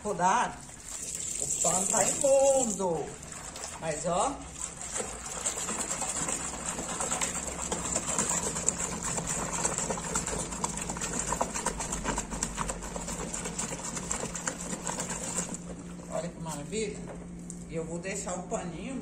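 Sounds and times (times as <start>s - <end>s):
steady low hum: 0.0s - 19.0s
rag sloshing in soapy water: 0.3s - 16.9s.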